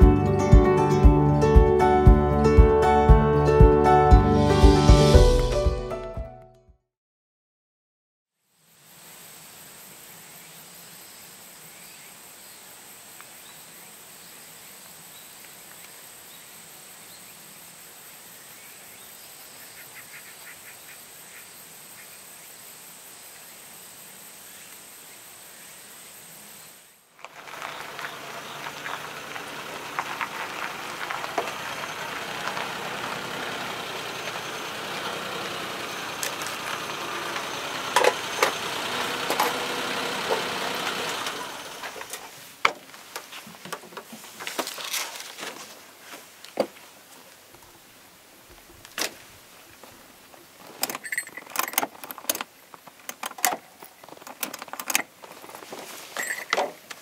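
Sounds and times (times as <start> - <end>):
vehicle engine idling: 27.3 - 42.4
sharp clicks and knocks: 50.7 - 55.1.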